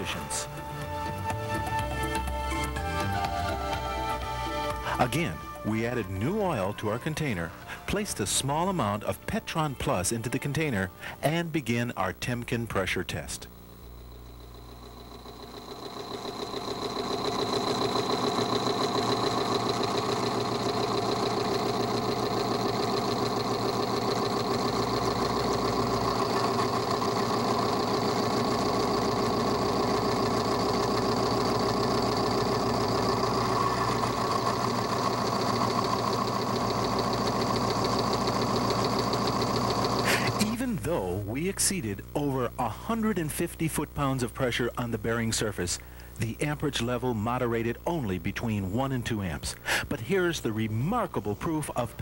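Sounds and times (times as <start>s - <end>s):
test machine rattling and whining: 0.0s - 7.1s, 13.5s - 40.8s.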